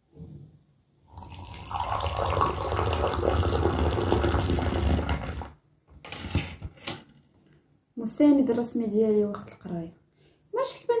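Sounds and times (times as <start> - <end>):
tea pouring into a glass: 1.1 - 5.5.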